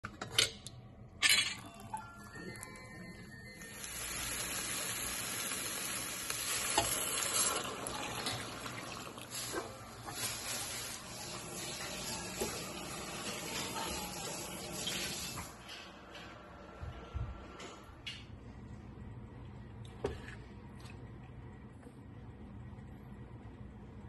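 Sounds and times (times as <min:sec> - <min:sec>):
stock sizzling in hot pan: 0:03.6 - 0:08.4, 0:09.2 - 0:13.5.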